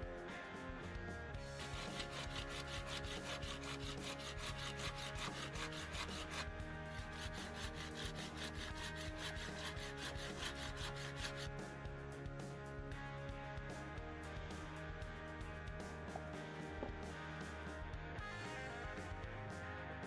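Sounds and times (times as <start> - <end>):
background music: 0.0 - 20.0
blade scraping wooden stick: 1.4 - 11.8.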